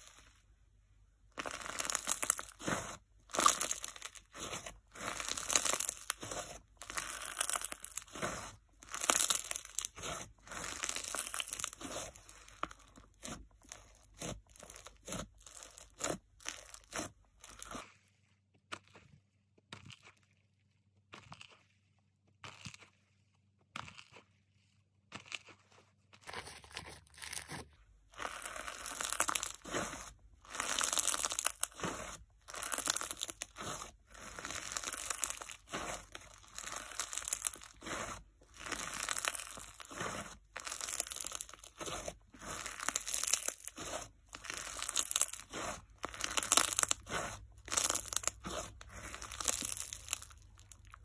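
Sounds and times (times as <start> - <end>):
slime squeezed crunchy crackle: 1.3 - 18.0, 25.1 - 51.0.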